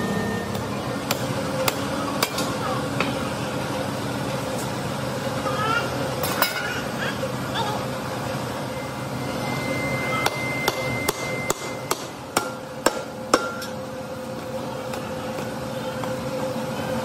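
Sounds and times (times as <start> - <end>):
machine hum: 0.0 - 17.0
hammer striking metal: 10.2 - 13.8.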